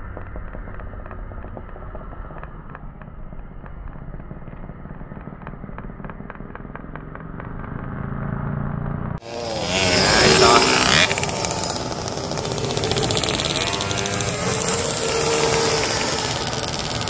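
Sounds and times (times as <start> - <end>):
mini motorcycle engine running: 0.0 - 17.0.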